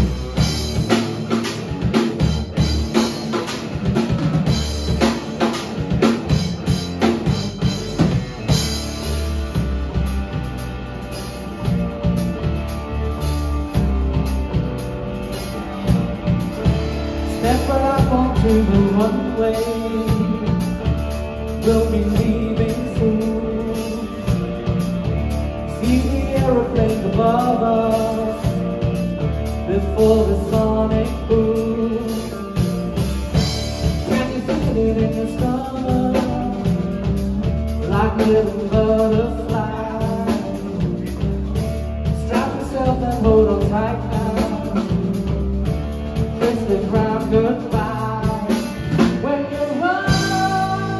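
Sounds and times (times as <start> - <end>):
bass guitar: 0.0 - 50.9
drum kit: 0.0 - 50.9
electric guitar: 0.0 - 50.9
person singing: 17.2 - 24.6, 25.6 - 32.8, 33.9 - 45.4, 46.4 - 50.9.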